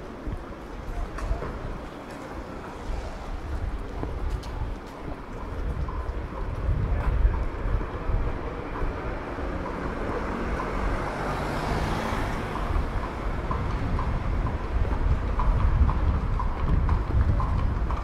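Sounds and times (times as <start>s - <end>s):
hooves clip-clopping on street: 0.0s - 18.0s
car passing by: 8.4s - 14.6s.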